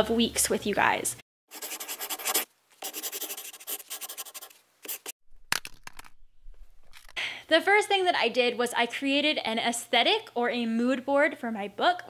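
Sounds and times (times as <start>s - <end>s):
pen scratching on paper: 1.5s - 5.1s.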